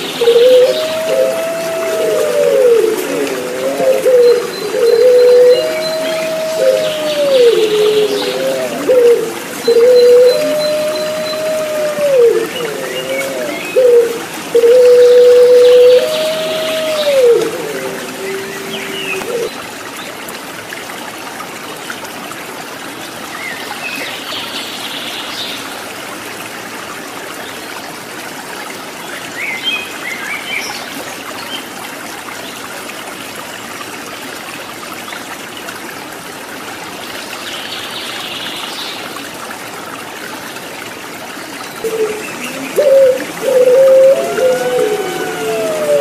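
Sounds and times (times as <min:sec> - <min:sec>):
dove cooing: 0:00.0 - 0:19.5, 0:41.8 - 0:46.0
water trickling and babbling: 0:00.0 - 0:46.0.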